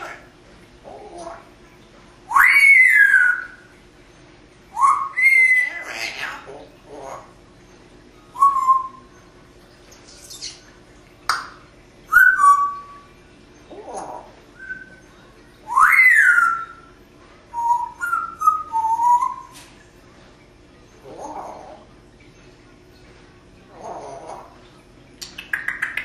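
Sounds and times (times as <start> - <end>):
parrot whistling: 2.3 - 3.7, 4.7 - 7.2, 8.3 - 9.2, 12.1 - 13.1, 13.7 - 15.0, 15.6 - 16.9, 17.5 - 19.6.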